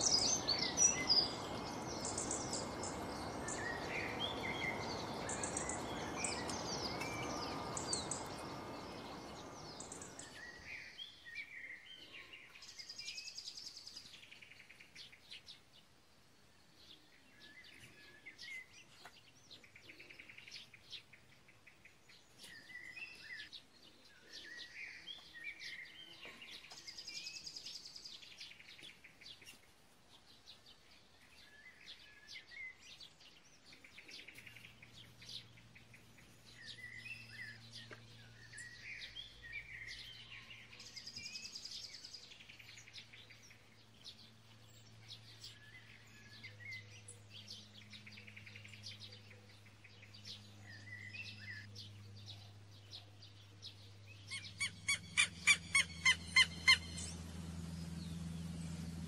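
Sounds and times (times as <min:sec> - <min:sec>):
small songbirds chirping: 0:00.0 - 0:59.0
fast bird trills: 0:54.3 - 0:57.2.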